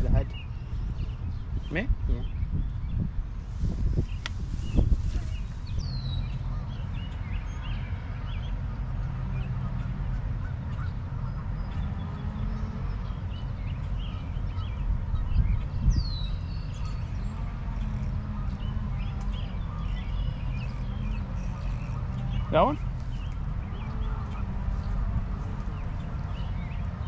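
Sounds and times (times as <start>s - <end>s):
small birds calling: 0.0s - 27.0s
wind rumbling on microphone: 0.0s - 27.0s
geese honking: 17.1s - 27.0s.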